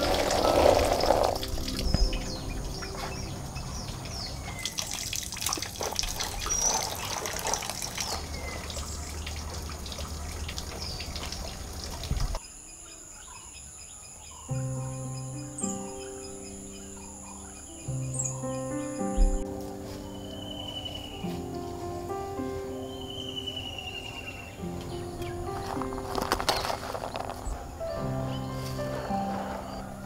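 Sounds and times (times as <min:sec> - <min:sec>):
watery splashing noise: 0:00.0 - 0:12.4
birds chirping: 0:00.0 - 0:30.0
berries clicking and rustling: 0:24.8 - 0:27.7.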